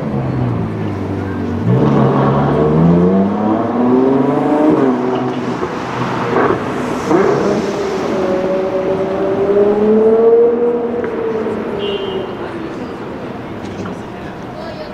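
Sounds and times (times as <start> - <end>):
car engine accelerating: 0.0 - 13.6
exhaust cracks: 4.7 - 9.5.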